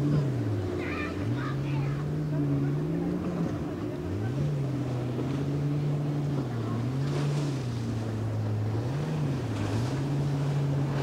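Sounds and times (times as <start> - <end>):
outboard engine running: 0.0 - 11.0.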